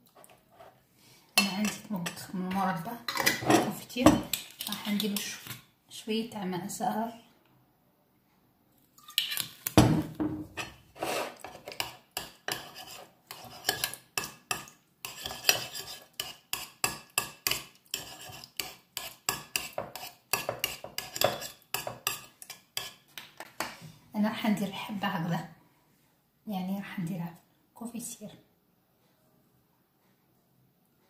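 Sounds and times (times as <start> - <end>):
metal spoon scraping a dish: 1.4 - 5.6, 10.5 - 23.6.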